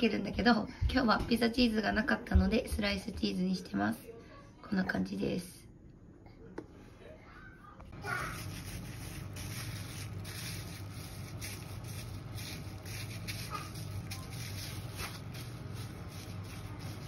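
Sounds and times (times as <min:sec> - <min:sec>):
steady low hum: 0:07.2 - 0:17.0
plastic bag crinkling: 0:08.0 - 0:17.0.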